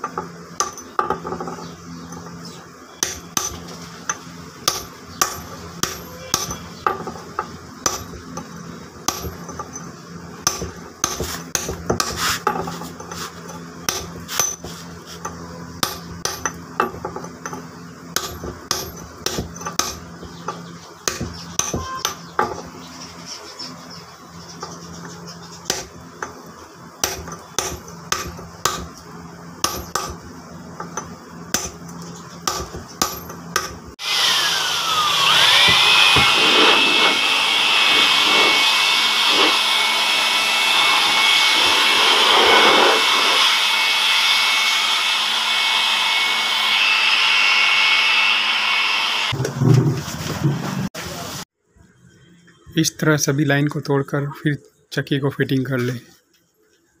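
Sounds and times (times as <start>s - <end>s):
hammer striking chisel on stone: 3.0s - 8.2s, 9.1s - 9.8s, 10.5s - 13.2s, 13.9s - 17.6s, 18.2s - 22.7s, 27.0s - 28.9s, 29.6s - 30.2s, 30.9s - 31.8s, 32.4s - 33.8s
electric blower running: 33.9s - 50.6s.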